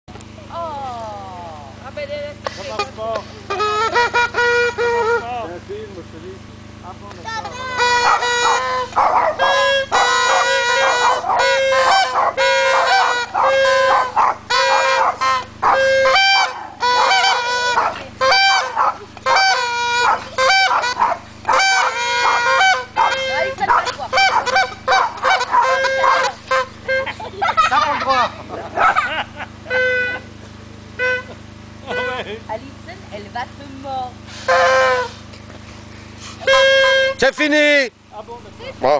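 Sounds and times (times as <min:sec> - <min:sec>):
small trumpets playing: 0:02.4 - 0:05.8, 0:06.6 - 0:29.0, 0:29.6 - 0:32.5, 0:34.2 - 0:35.4, 0:36.1 - 0:37.9.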